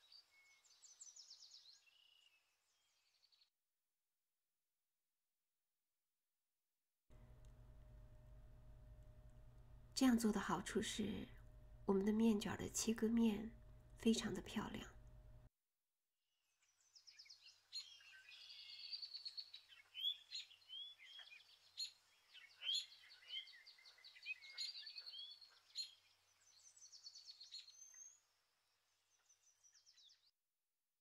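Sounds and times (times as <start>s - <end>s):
birdsong chirps and trills: 0.0s - 3.4s, 16.5s - 30.3s.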